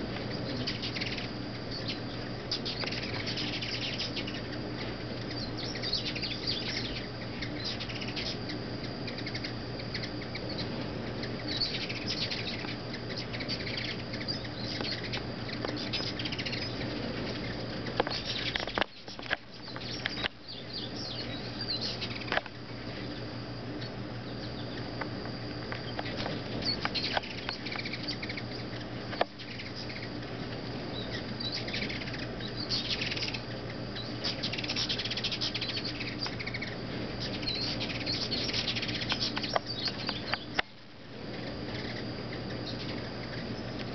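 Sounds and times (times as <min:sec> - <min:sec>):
hummingbird wings humming: 0:00.0 - 0:43.9
high-pitched bird chirps: 0:05.2 - 0:22.3, 0:30.9 - 0:40.6.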